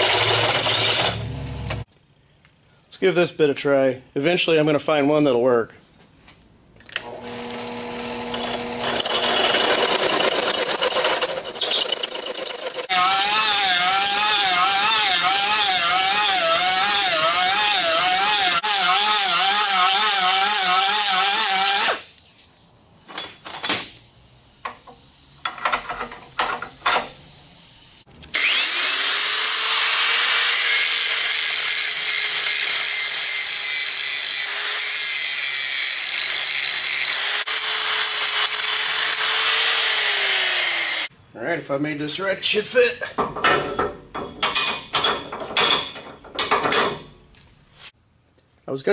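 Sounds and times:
angle grinder grinding steel: 0.0s - 1.8s, 7.0s - 22.3s, 24.6s - 41.1s
drill press drilling steel: 0.0s - 1.8s, 7.0s - 22.0s, 28.3s - 41.1s
die grinder warbling: 7.6s - 22.0s.

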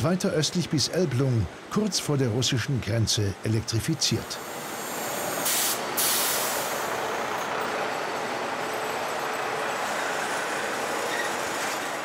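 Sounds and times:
train wheels rumbling on rails: 4.2s - 12.0s
short hiss: 5.4s - 6.8s.

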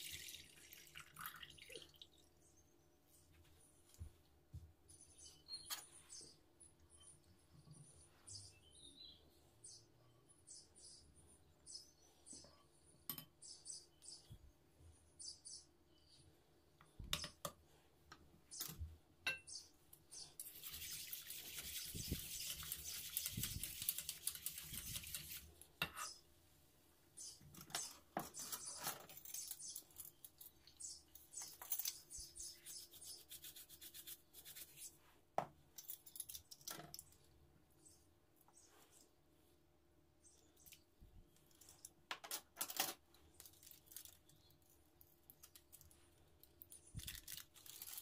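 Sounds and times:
whisk swishing and scraping: 20.4s - 25.5s.

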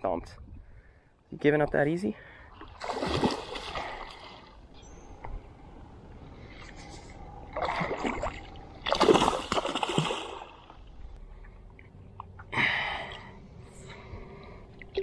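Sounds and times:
fish thrashing and splashing: 2.7s - 4.5s, 7.6s - 10.7s.

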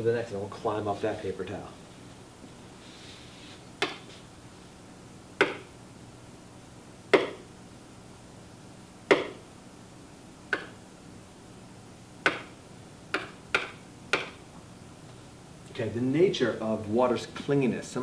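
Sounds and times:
faint room hum: 0.0s - 18.0s
hand tapping whiteboard: 5.4s - 5.7s, 7.1s - 7.4s, 9.1s - 9.4s, 12.2s - 12.5s, 13.1s - 14.4s.

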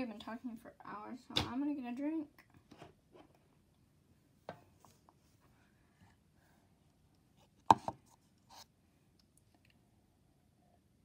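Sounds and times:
plastic cup knocking on desk: 7.7s - 8.0s.

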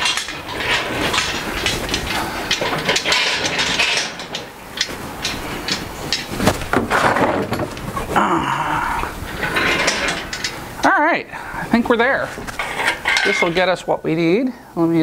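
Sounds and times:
lifting chain rattling: 0.0s - 7.9s, 9.0s - 10.9s, 11.8s - 13.9s
metallic clanks and rattles: 0.0s - 8.2s, 9.1s - 10.9s, 11.9s - 14.0s.

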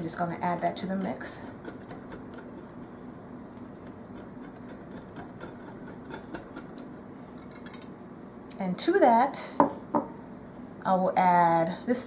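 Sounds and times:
whisk clicking against glass bowl: 0.3s - 3.0s, 3.8s - 7.9s.

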